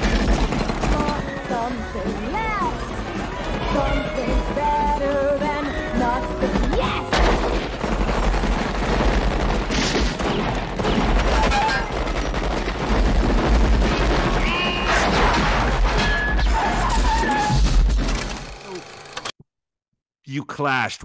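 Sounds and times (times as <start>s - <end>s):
submachine gun fire: 0.0s - 1.4s, 6.6s - 15.8s.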